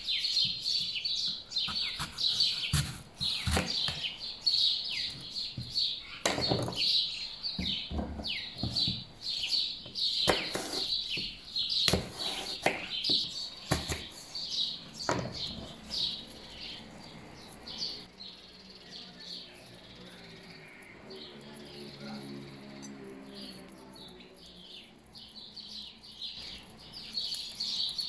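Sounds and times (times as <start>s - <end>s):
songbirds chirping: 0.0s - 28.0s
knife chopping on cutting board: 1.6s - 4.1s, 10.2s - 11.3s, 11.9s - 14.2s.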